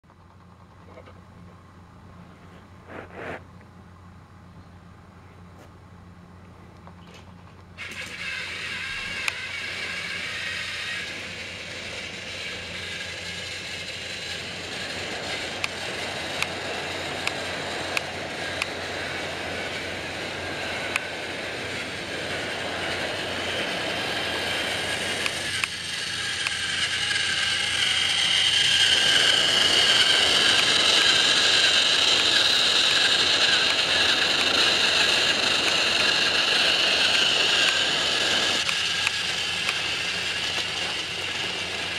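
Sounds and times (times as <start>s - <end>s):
high whine: 0.8s - 5.7s, 6.4s - 41.9s
toy train motors whirring: 7.0s - 41.9s
sharp clicks: 38.6s - 39.8s.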